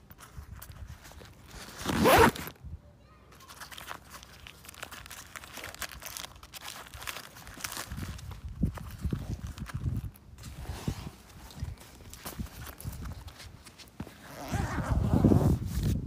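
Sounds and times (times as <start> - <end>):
fabric rustling: 0.1 - 2.5, 3.4 - 16.0
zipper pulled open: 0.5 - 2.6, 10.4 - 11.7, 12.5 - 16.0
snack wrapper rustling: 3.4 - 10.2.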